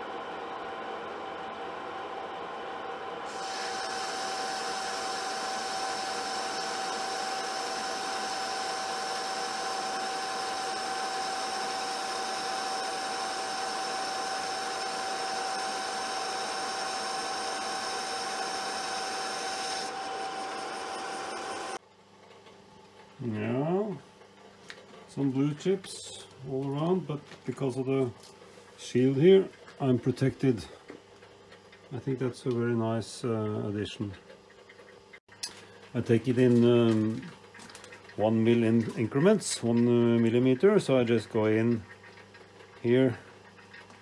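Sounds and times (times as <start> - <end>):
lathe gear whine: 0.0 - 21.8.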